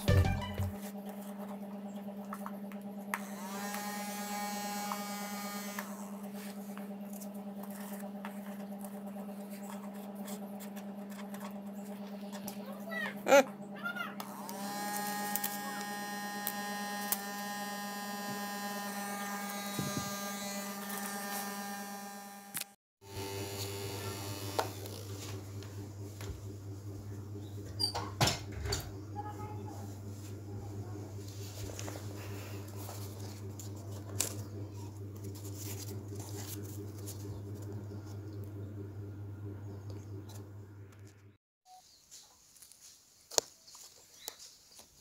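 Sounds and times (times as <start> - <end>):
small electric motor whining: 3.0 - 9.1, 14.2 - 25.8
steady low hum: 23.1 - 41.4.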